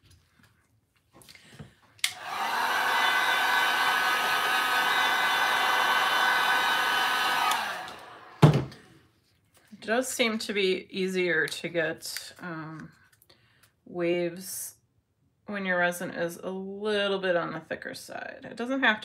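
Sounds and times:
heat gun switch click: 2.0s - 2.2s
heat gun blowing and whining: 2.0s - 8.4s.

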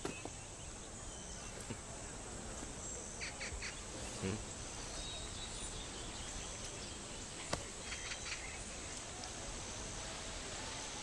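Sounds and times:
steady background hiss: 0.0s - 11.0s.

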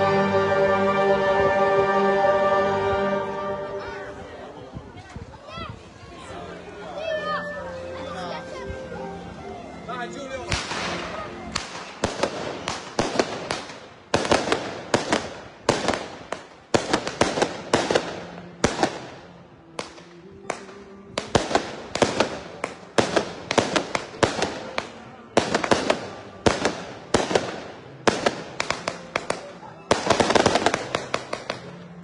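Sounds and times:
firecrackers banging: 10.5s - 32.0s.

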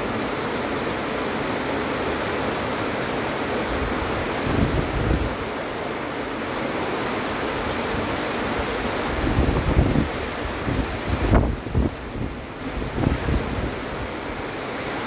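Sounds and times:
heavy rain pouring: 0.0s - 15.0s
wind buffeting microphone: 3.8s - 5.5s, 8.8s - 14.2s.

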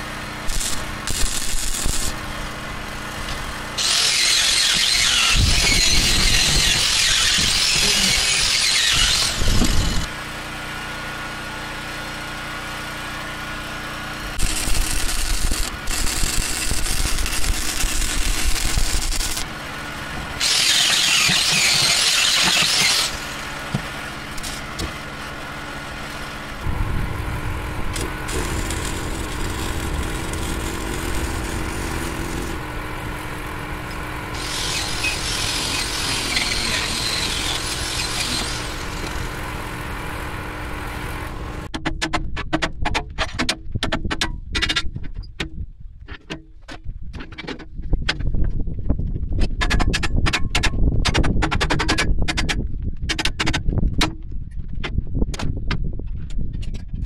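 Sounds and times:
engine running: 0.0s - 41.7s
loud hissing: 34.3s - 39.4s.

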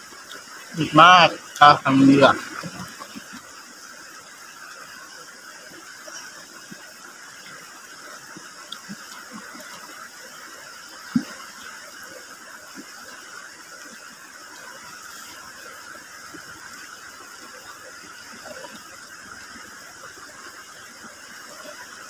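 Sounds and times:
river rushing: 0.0s - 3.8s.

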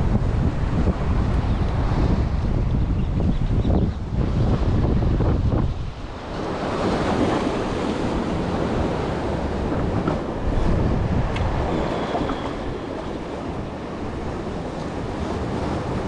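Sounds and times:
wind buffeting microphone: 0.0s - 16.0s
waves washing: 4.0s - 16.0s.

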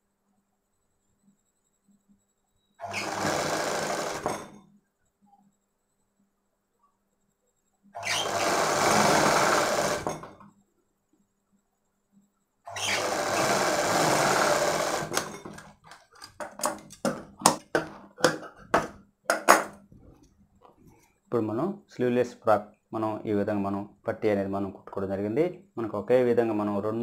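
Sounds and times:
sewing machine stitching: 2.8s - 4.6s, 8.0s - 10.4s, 12.7s - 16.3s.

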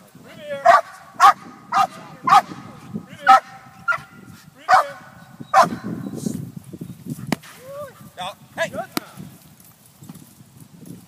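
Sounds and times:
young dog barking: 0.6s - 5.9s.

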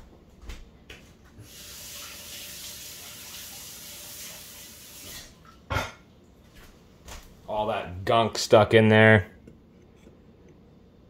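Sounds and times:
tap water running into sink: 1.4s - 5.6s.

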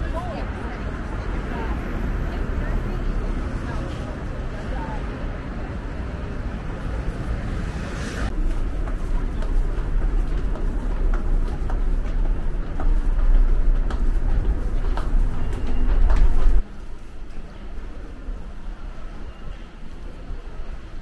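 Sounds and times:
footsteps on concrete stairs: 8.3s - 16.6s.

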